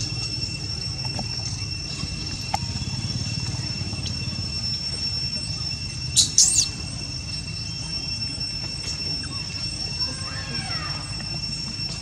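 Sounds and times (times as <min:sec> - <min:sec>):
high-pitched two-tone whine: 0:00.0 - 0:12.0
sharp high-pitched squeaks: 0:03.6 - 0:12.0.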